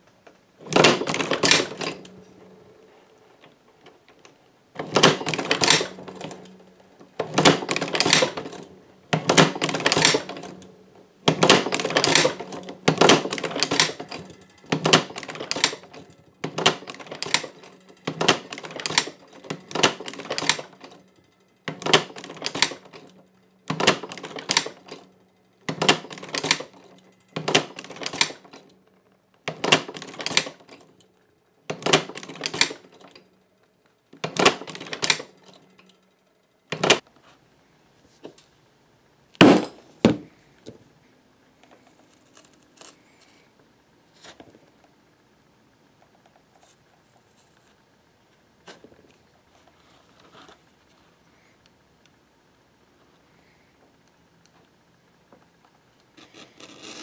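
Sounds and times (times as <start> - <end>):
faint steady hum: 0.0 - 22.2, 24.8 - 57.0
sewing machine clacking: 0.6 - 2.6, 4.8 - 28.8, 29.4 - 31.0, 31.7 - 33.4, 34.0 - 36.0, 36.7 - 37.0.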